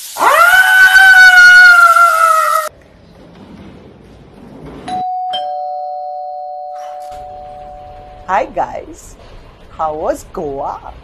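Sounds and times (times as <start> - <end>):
doorbell chiming ding-dong: 4.9 - 8.3.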